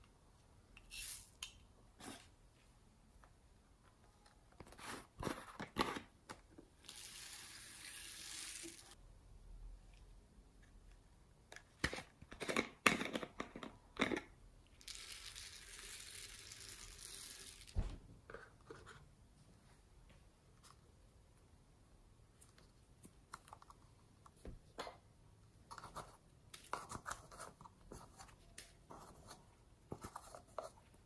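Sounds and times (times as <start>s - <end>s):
foam beads pouring hiss: 7.0s - 9.0s.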